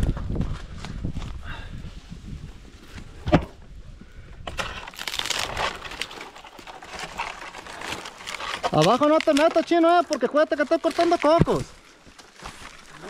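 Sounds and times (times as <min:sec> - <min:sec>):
palm fronds rustling and scraping: 0:04.4 - 0:13.0.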